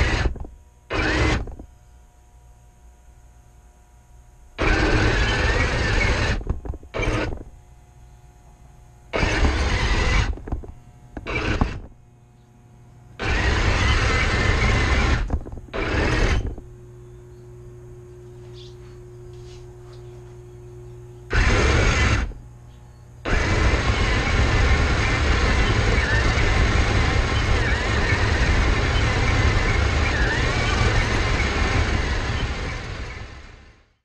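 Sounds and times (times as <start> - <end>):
model tank motor and tracks grinding: 0.0 - 1.6, 4.6 - 7.5, 9.2 - 11.9, 13.2 - 16.6, 21.3 - 22.4, 23.3 - 33.9
steady low hum: 0.0 - 34.0.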